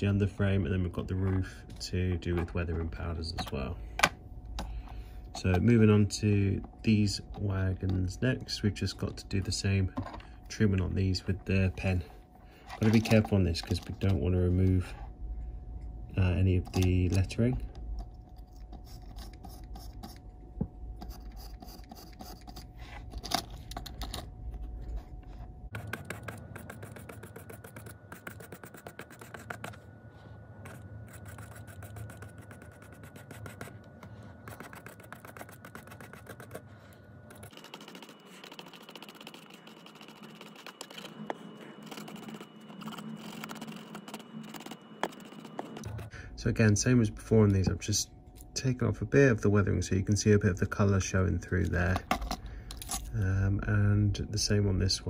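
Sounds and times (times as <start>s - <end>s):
pen scratching on model wagon: 18.4s - 20.2s, 21.0s - 22.7s, 25.8s - 29.8s, 30.6s - 33.7s, 34.5s - 36.6s, 37.3s - 45.9s.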